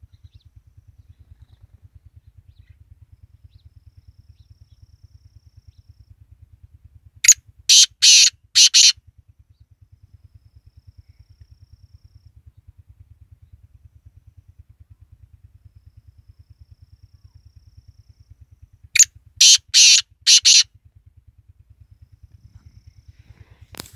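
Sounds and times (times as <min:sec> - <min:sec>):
low rapid throbbing hum: 0:00.0 - 0:23.9
francolin calling: 0:07.2 - 0:08.9, 0:19.0 - 0:20.6.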